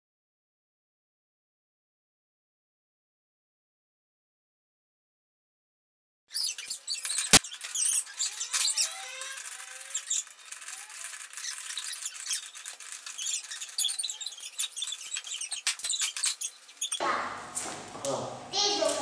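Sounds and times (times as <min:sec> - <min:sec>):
short squeaks: 0:06.3 - 0:17.0
metal clicking and rattling: 0:06.9 - 0:17.0.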